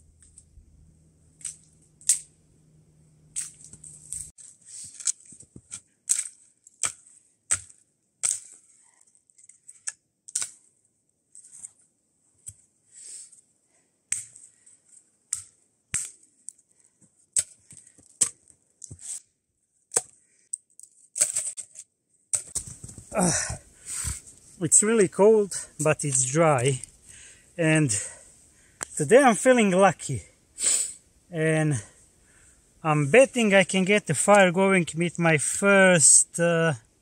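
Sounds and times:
dry sticks snapping: 0:01.4 - 0:02.3, 0:06.1 - 0:08.5.

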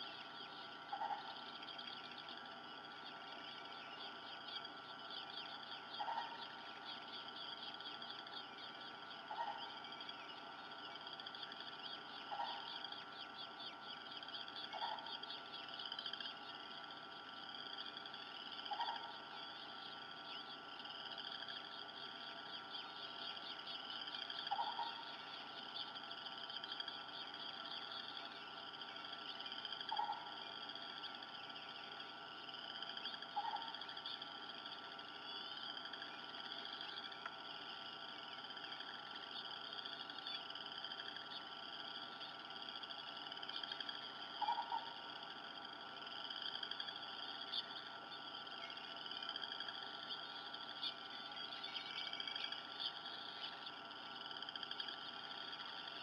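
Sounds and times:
chorus of high animal calls: 0:00.1 - 0:17.0, 0:17.8 - 0:31.2.

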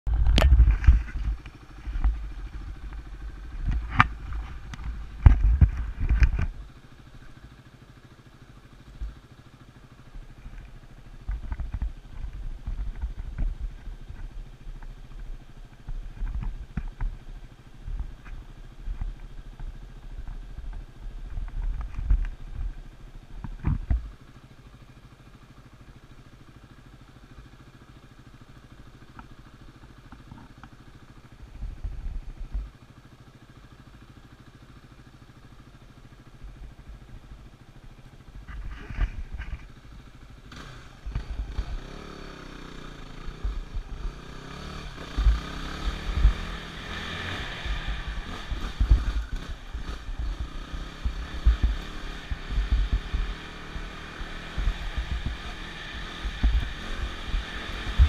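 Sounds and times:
dirt bike engine revving: 0:40.4 - 0:58.0.

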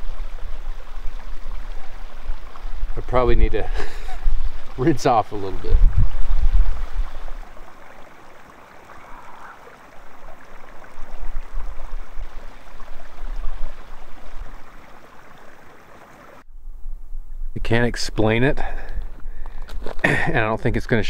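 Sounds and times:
wind rumbling on microphone: 0:00.0 - 0:08.1, 0:08.8 - 0:15.0
spring water trickling and splashing: 0:00.0 - 0:16.4.

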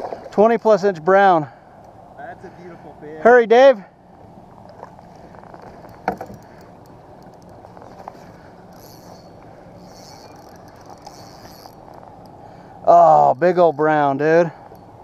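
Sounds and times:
water and wind noise: 0:00.0 - 0:15.0
faint clicks: 0:04.6 - 0:12.4.

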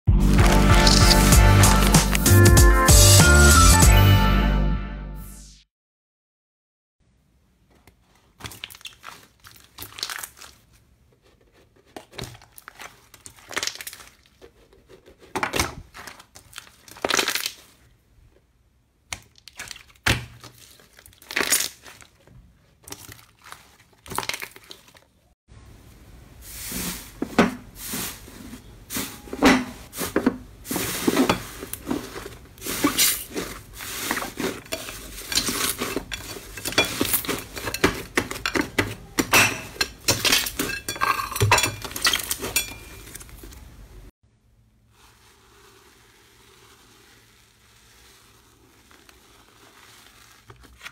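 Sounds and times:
slime crackling and popping: 0:00.3 - 0:02.3, 0:08.4 - 0:10.7, 0:12.2 - 0:14.4, 0:15.9 - 0:17.8, 0:19.1 - 0:22.2.

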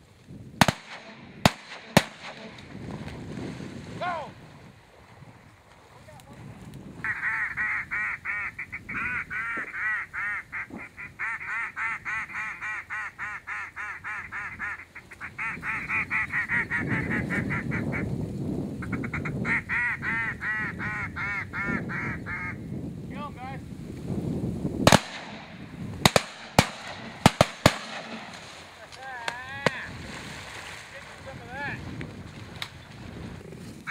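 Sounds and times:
shotgun shots: 0:00.6 - 0:02.7, 0:24.9 - 0:28.8
duck call quacking: 0:07.0 - 0:18.1, 0:18.8 - 0:22.6.

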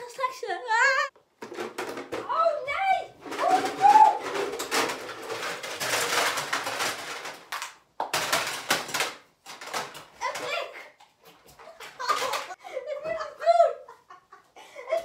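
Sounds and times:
cloth and plastic rustling: 0:02.8 - 0:12.6.

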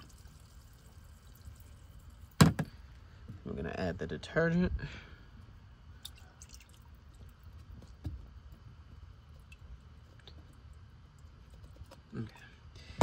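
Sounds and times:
liquid pouring into water: 0:00.0 - 0:02.4, 0:06.0 - 0:07.6
small thump: 0:02.4 - 0:02.8.

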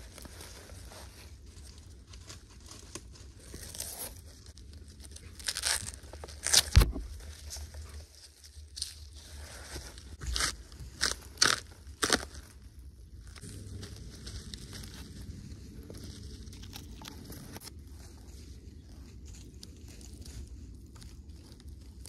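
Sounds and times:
rustle of bark fibres: 0:00.0 - 0:22.0
bark tearing cracks: 0:04.9 - 0:07.2, 0:10.2 - 0:12.6.

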